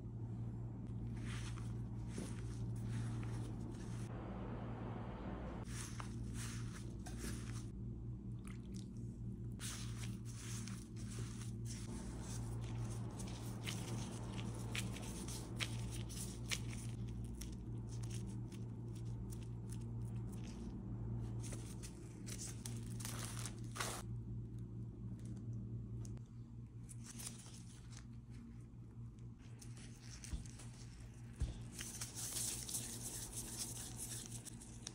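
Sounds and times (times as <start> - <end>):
steady low hum: 0.0 - 34.9
dough crunching and squishing: 5.6 - 24.0.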